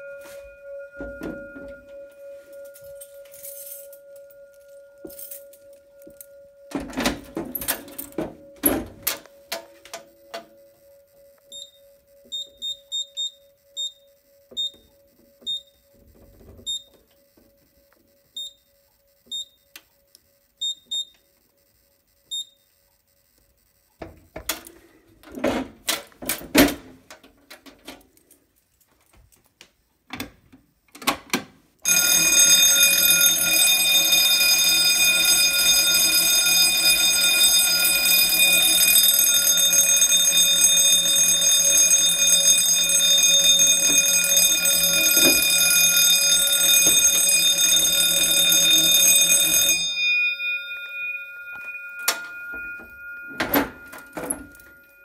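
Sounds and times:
fire alarm bell ringing: 0:00.0 - 0:22.4, 0:31.8 - 0:55.0
high keypad beeps: 0:11.5 - 0:15.8
knocks and rattling: 0:52.1 - 0:54.7.

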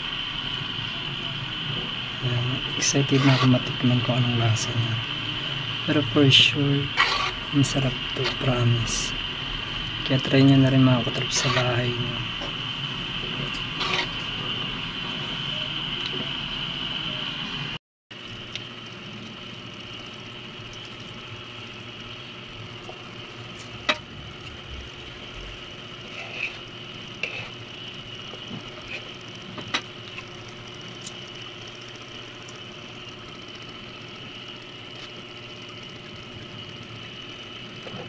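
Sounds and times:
steady hum: 0:00.0 - 0:38.0
spoon stirring thick porridge: 0:26.0 - 0:27.6.

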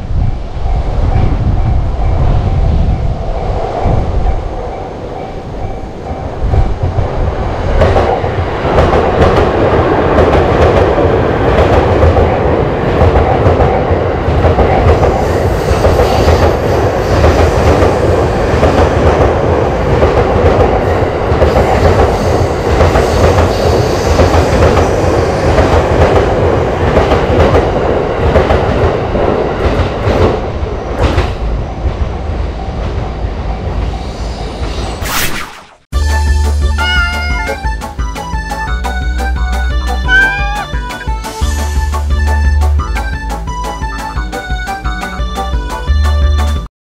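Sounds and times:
train rumble: 0:00.0 - 0:35.0, 0:36.0 - 0:46.7
crossing warning bell: 0:00.4 - 0:06.5.

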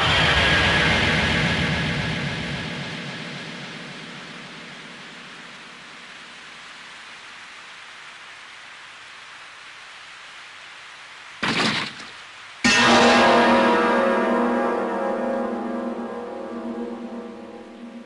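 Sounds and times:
sudden loud noise burst: 0:00.0 - 0:05.5, 0:12.6 - 0:18.0
heavy rain hissing: 0:00.0 - 0:18.0.

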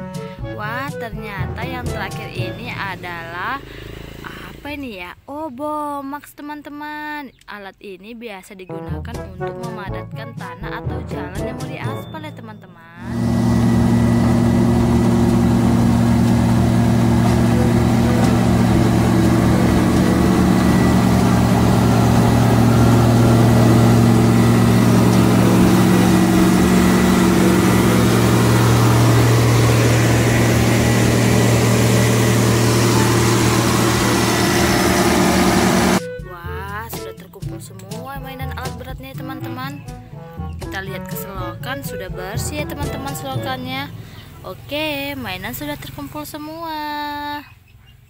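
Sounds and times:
road roller diesel engine running: 0:13.0 - 0:36.0.

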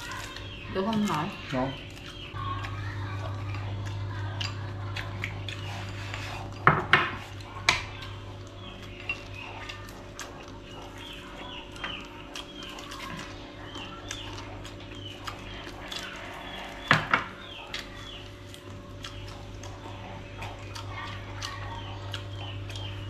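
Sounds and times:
faint birds chirping: 0:00.0 - 0:23.0
steady low hum: 0:00.0 - 0:23.0
chopsticks and bowls clinking: 0:03.4 - 0:09.8.

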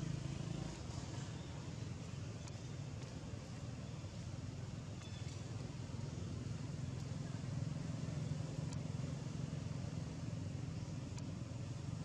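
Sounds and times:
engine rumbling: 0:00.0 - 0:12.0
faint clicks: 0:02.4 - 0:03.6, 0:08.6 - 0:08.9, 0:11.0 - 0:11.4.

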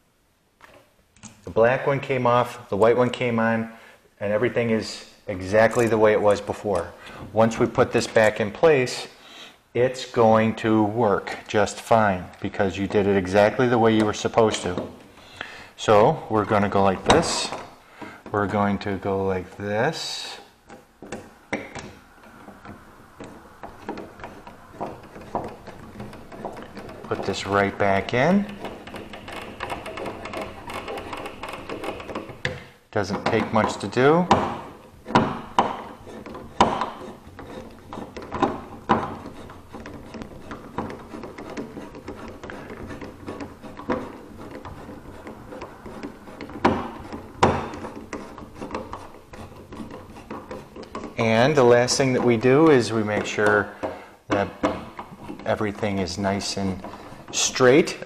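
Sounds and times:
screwdriver turning a screw: 0:20.7 - 0:58.0.

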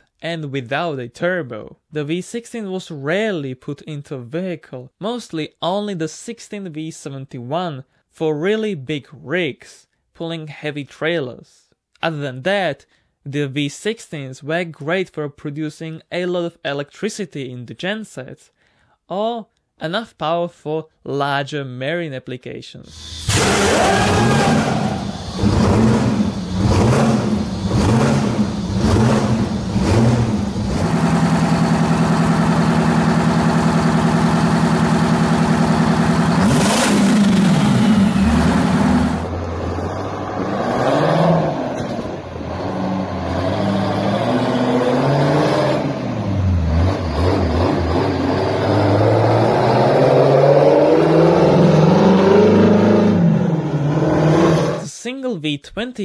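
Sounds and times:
diesel engine revving: 0:22.9 - 0:54.8.

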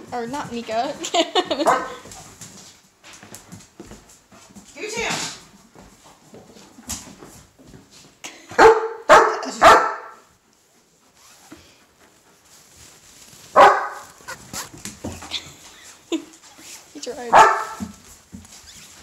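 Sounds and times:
dog barking: 0:01.6 - 0:02.0, 0:08.6 - 0:10.3, 0:13.6 - 0:14.7, 0:17.3 - 0:17.9.

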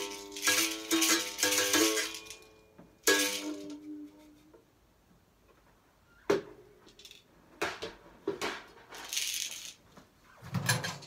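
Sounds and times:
shaker rattle: 0:00.0 - 0:02.5, 0:09.0 - 0:09.8.

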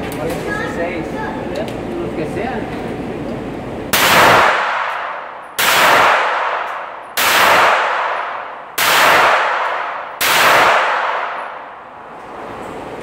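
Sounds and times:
handgun shots echoing indoors: 0:03.9 - 0:12.2.

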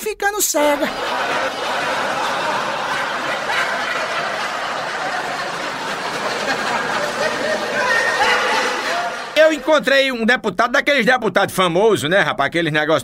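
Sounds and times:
crowd laughing: 0:00.8 - 0:09.9.

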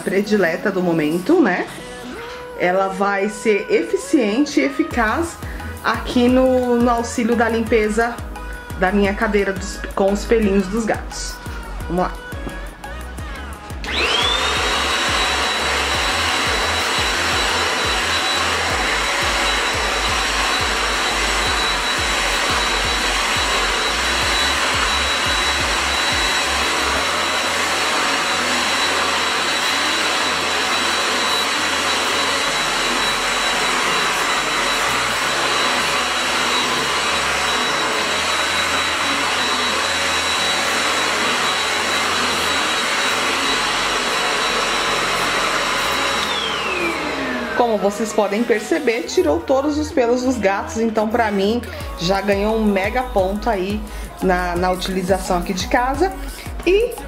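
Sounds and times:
handheld vacuum motor whine: 0:13.7 - 0:57.0.

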